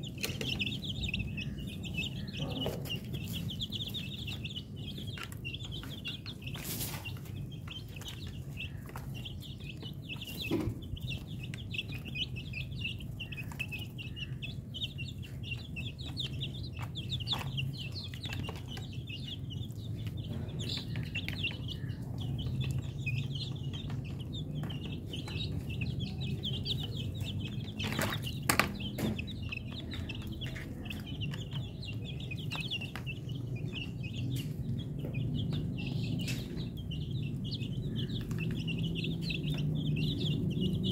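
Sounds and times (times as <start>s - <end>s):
chicks peeping and chirping: 0.0s - 40.9s.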